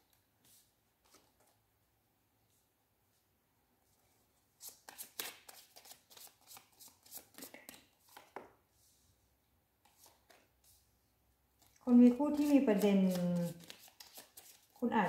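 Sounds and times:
cards dealt onto cloth table: 0:04.7 - 0:08.5, 0:09.8 - 0:10.8, 0:12.3 - 0:14.8.

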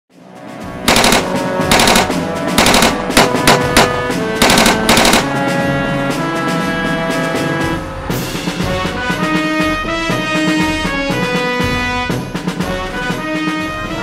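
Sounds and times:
music: 0:00.1 - 0:14.0
machine-gun fire: 0:00.9 - 0:05.4.

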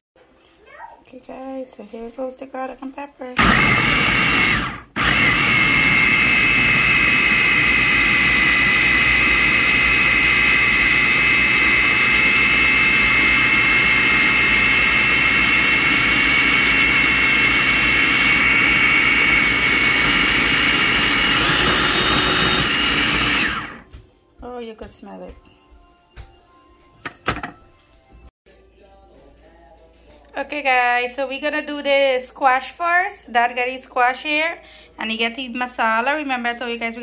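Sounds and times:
food processor chopping: 0:03.4 - 0:23.9.

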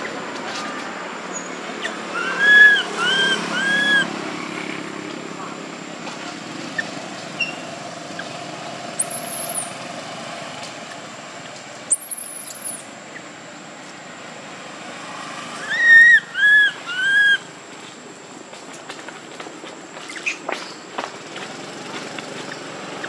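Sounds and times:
baby monkey high squeaks: 0:01.3 - 0:04.1, 0:06.8 - 0:08.3, 0:09.0 - 0:09.8, 0:11.9 - 0:13.2, 0:15.6 - 0:17.5
baby monkey crying calls: 0:01.8 - 0:04.2, 0:06.7 - 0:09.8, 0:11.9 - 0:13.3, 0:15.6 - 0:17.5
background hiss: 0:03.4 - 0:22.8.

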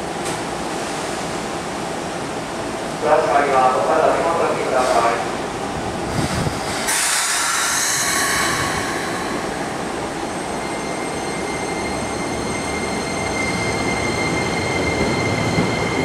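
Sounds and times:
train running noise: 0:00.0 - 0:16.0
air hiss: 0:06.1 - 0:10.0.

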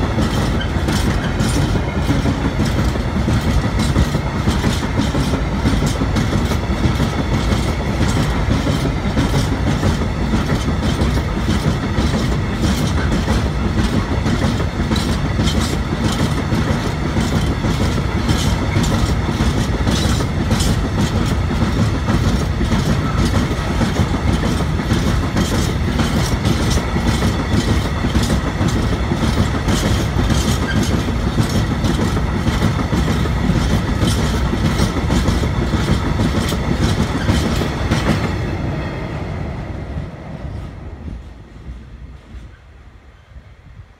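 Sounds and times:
wheels clacking over rail joints: 0:00.0 - 0:38.9
freight train wheels rumbling: 0:00.0 - 0:43.9.

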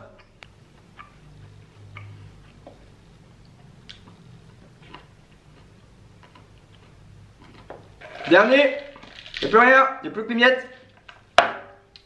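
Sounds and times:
person chewing food: 0:00.2 - 0:08.1.

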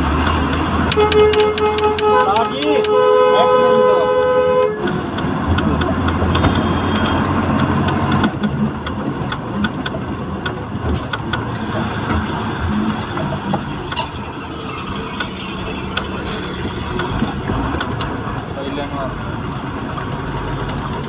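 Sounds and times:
road noise: 0:00.0 - 0:21.0
truck engine running: 0:00.0 - 0:21.0
small rattles: 0:04.9 - 0:21.0.

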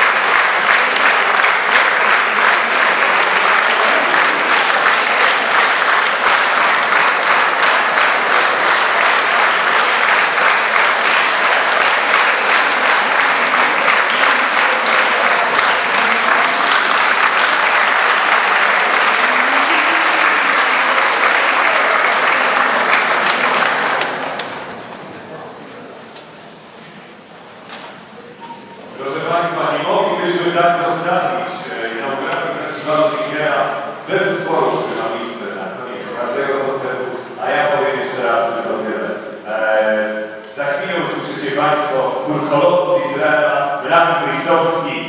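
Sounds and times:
large audience applauding: 0:00.0 - 0:25.1.

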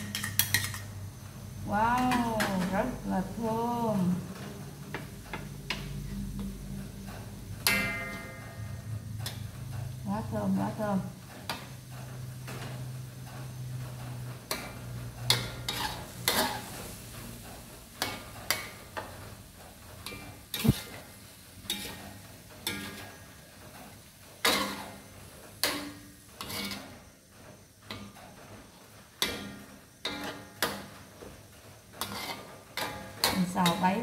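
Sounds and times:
metal spatula scraping a wok: 0:00.0 - 0:01.2, 0:14.5 - 0:17.4, 0:20.0 - 0:27.1, 0:29.2 - 0:31.1, 0:31.8 - 0:34.0
food sizzling: 0:00.0 - 0:34.0.

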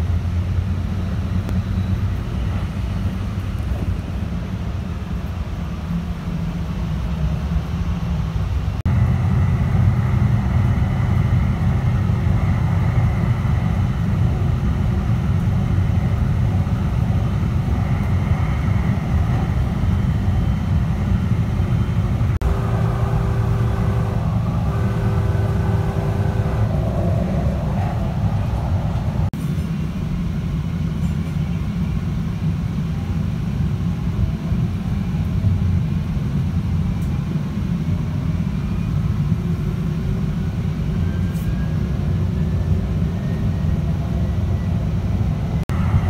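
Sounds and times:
train wheels rumbling on track: 0:00.0 - 0:46.0
steady higher tones: 0:22.0 - 0:29.3.

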